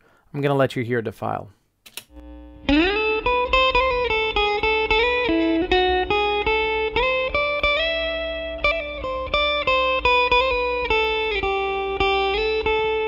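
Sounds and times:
electric guitar picking notes: 2.1 - 13.0
low mains hum: 2.2 - 4.0.

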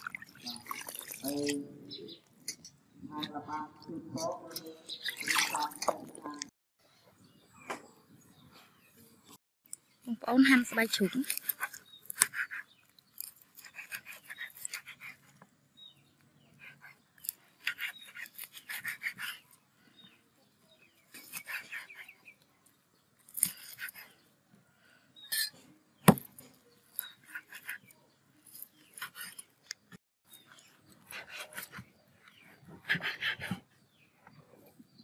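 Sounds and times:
knife slicing through puffed food: 11.0 - 15.4, 16.6 - 19.6, 21.0 - 22.4, 26.0 - 33.6.

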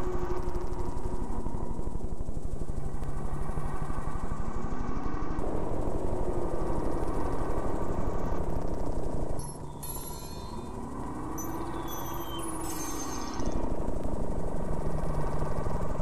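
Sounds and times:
pulsing mechanical drone: 0.0 - 16.0
slow rising tones: 9.4 - 13.8
steady high tone: 9.4 - 14.0.

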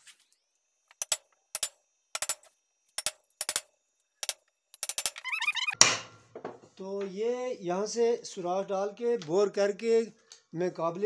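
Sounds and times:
loud metal knock: 5.8 - 6.6.

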